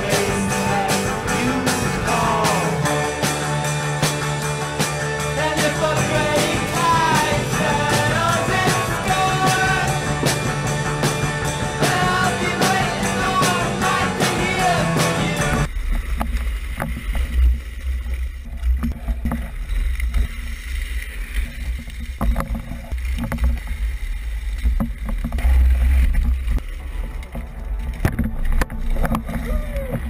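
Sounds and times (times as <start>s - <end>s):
rock music with singing: 0.0s - 15.7s
wheels rumbling on asphalt: 0.0s - 30.0s.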